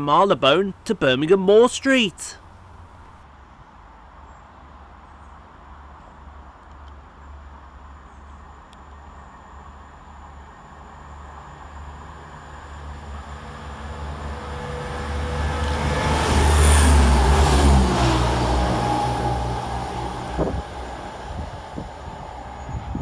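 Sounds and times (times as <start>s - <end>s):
diesel train passing: 7.1s - 23.0s.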